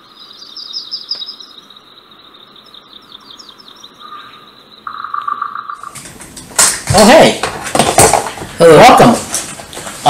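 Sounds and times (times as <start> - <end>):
high insect drone: 0.0 - 6.0
birds chirping: 0.0 - 7.3.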